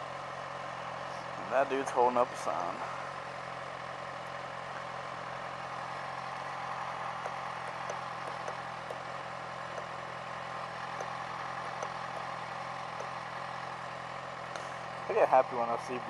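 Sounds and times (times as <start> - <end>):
motorcycle engine idling: 0.0 - 16.0.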